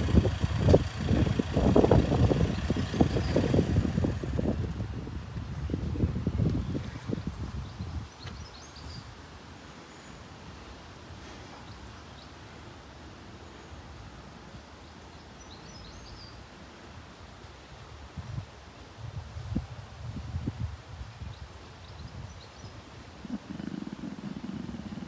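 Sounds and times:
wind buffeting microphone: 0:00.0 - 0:09.4, 0:17.8 - 0:25.0.

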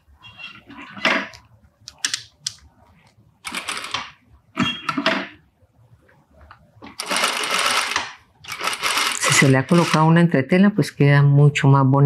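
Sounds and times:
sewing machine whirring: 0:03.4 - 0:04.2, 0:06.9 - 0:10.2.

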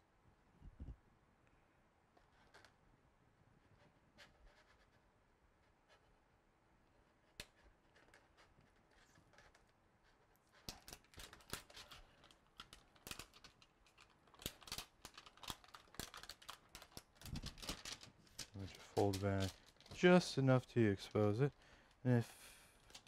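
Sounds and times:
paper backing peeling and crackling: 0:07.4 - 0:23.0.

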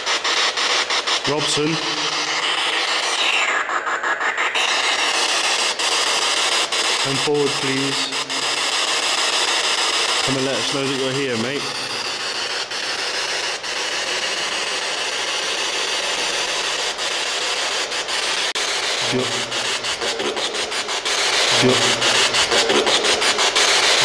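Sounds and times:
radio static hiss: 0:00.0 - 0:24.0
rapid clicks: 0:00.1 - 0:24.0
radio voice: 0:01.2 - 0:02.2, 0:07.1 - 0:08.5, 0:10.2 - 0:11.9, 0:19.0 - 0:20.6, 0:21.5 - 0:23.1.

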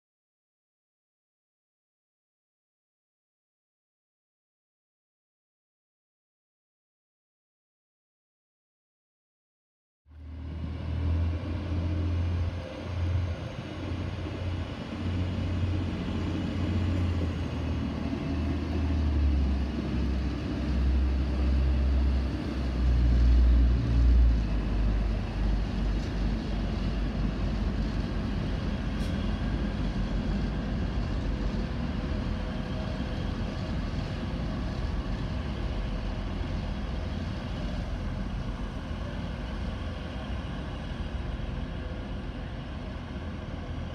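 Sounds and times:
diesel train idling: 0:10.2 - 0:43.9
train running on tracks: 0:10.2 - 0:43.9.

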